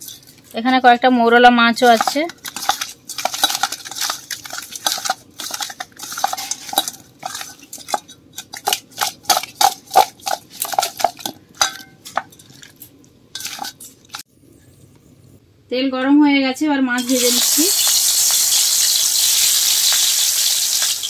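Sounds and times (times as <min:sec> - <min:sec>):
clinks and knocks against steel bowl: 0:01.8 - 0:12.8.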